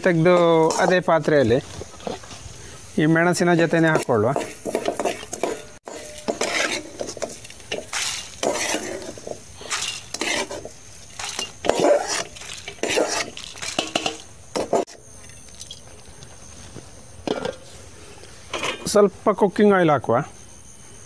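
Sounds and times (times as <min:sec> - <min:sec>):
steel ladle scraping wok: 0:00.2 - 0:01.2, 0:03.6 - 0:15.0.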